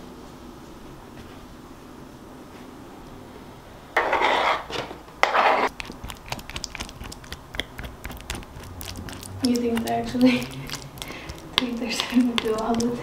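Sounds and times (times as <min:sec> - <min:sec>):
utensil scraping plastic container: 0:04.0 - 0:13.0.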